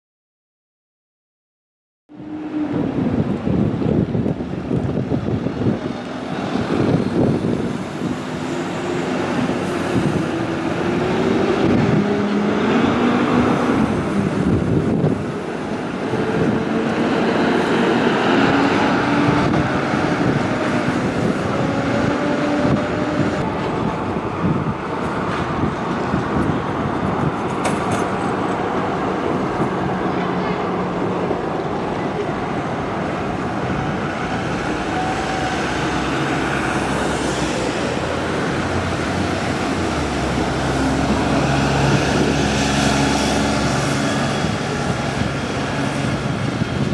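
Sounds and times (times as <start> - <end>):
buses pulling away: 2.1 - 46.9
street traffic: 2.1 - 46.9.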